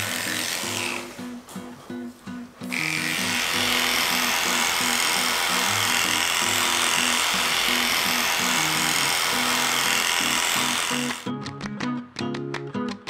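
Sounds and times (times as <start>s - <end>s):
electric clippers running: 0.0s - 1.3s, 2.6s - 11.3s
background music: 0.0s - 13.0s.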